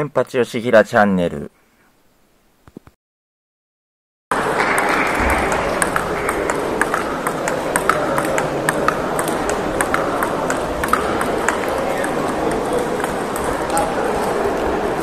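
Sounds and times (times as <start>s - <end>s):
gym hall din: 4.3s - 15.0s
table tennis balls clicking: 4.4s - 14.9s.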